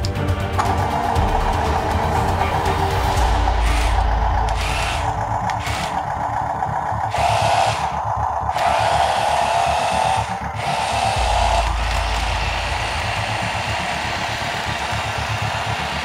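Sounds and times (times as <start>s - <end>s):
low rumble: 0.4s - 16.0s
toy tank motors whirring: 3.6s - 16.0s.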